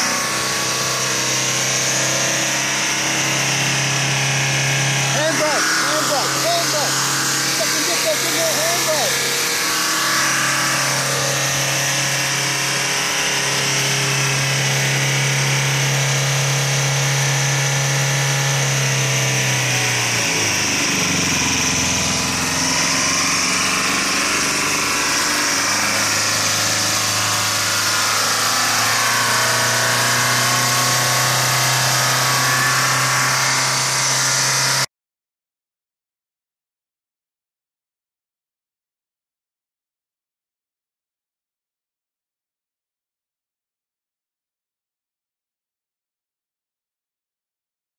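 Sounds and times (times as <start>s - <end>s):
diesel engine over-revving: 0.0s - 34.9s.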